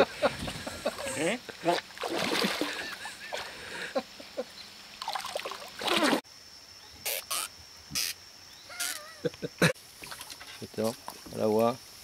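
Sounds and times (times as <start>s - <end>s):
water sloshing: 0.4s - 3.6s, 5.0s - 6.2s
fish splashing in water: 1.7s - 3.5s, 5.0s - 6.2s.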